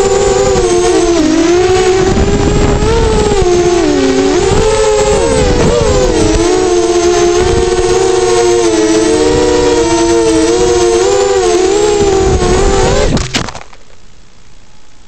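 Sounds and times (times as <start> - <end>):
drone motors whining: 0.0 - 13.7.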